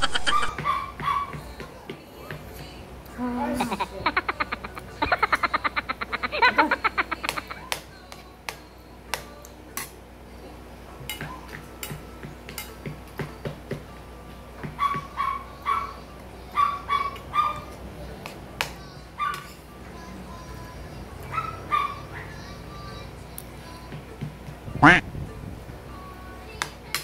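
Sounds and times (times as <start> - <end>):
rapid pulsing croak: 24.8 - 25.0.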